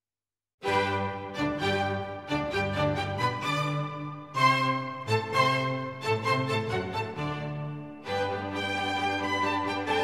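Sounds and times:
violin-like strings: 0.6 - 10.0.

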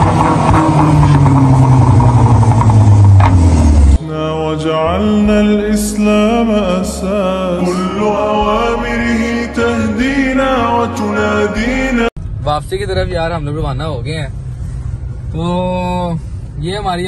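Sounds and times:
car engine revving: 0.0 - 17.0
person singing: 4.0 - 12.1.

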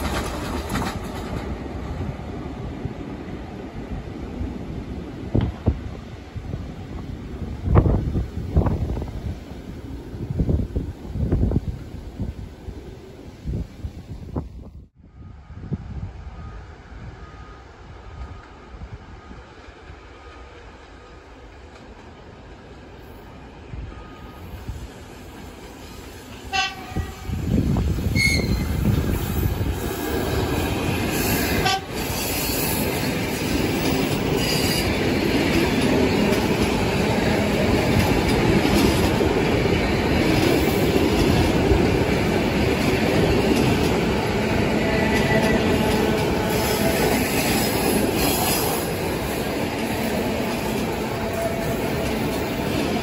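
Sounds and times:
train wheels rumbling and clattering: 0.0 - 12.4, 24.0 - 53.0
train horn toots: 26.4 - 27.5, 28.1 - 28.9, 31.2 - 32.6, 49.8 - 53.0.

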